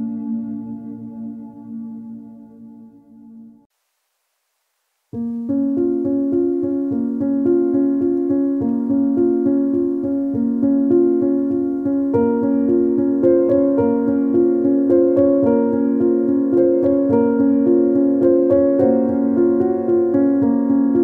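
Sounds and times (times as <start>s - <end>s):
ambient background music: 0.0s - 3.7s, 5.3s - 21.0s
piano keyboard repeated notes: 5.2s - 21.0s.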